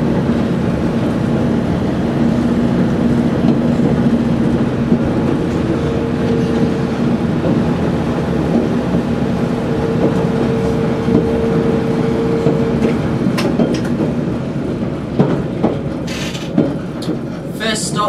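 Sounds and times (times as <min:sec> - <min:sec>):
train engine and wheels rumbling: 0:00.0 - 0:18.0
sharp clicks and knocks: 0:12.4 - 0:14.2.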